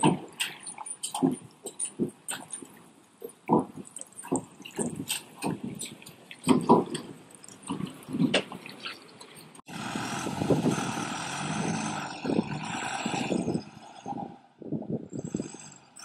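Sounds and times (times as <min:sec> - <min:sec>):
tyres splashing through mud: 0:00.0 - 0:14.4
diesel truck engine under load: 0:00.0 - 0:16.0
tyres grinding over dirt: 0:00.0 - 0:16.0.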